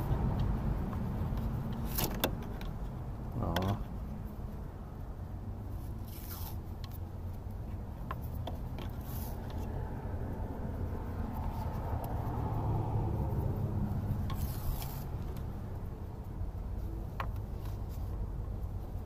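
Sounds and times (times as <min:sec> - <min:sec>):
tape rubbing and handling: 0:00.0 - 0:05.0, 0:05.6 - 0:19.0
steady low rumble: 0:08.6 - 0:19.0.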